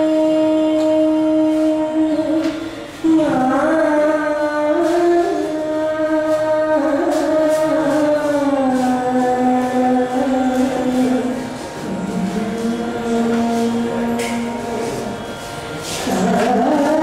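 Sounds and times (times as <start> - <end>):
woman singing classical vocal: 0.0 - 15.2, 16.0 - 17.0.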